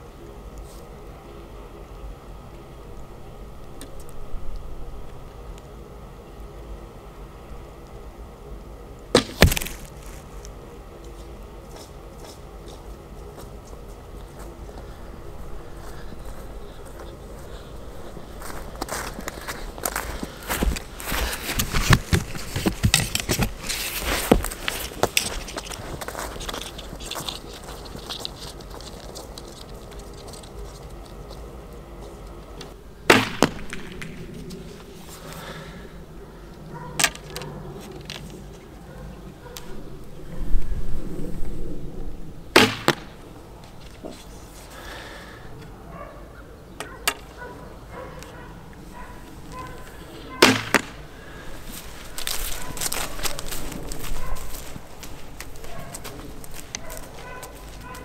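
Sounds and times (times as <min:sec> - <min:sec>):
arrow thudding into target: 0:09.1 - 0:09.9, 0:33.1 - 0:34.2, 0:42.5 - 0:43.2, 0:50.4 - 0:51.0
longbow shot crack: 0:09.1 - 0:10.0, 0:33.0 - 0:34.5, 0:42.5 - 0:43.3, 0:50.4 - 0:51.2
footsteps in grass: 0:09.2 - 0:32.7, 0:47.2 - 0:58.0.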